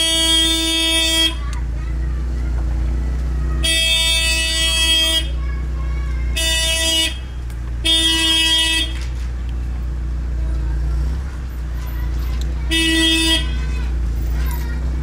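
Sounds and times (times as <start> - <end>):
car horn honking: 0.0 - 1.6, 3.4 - 9.2, 12.6 - 14.1.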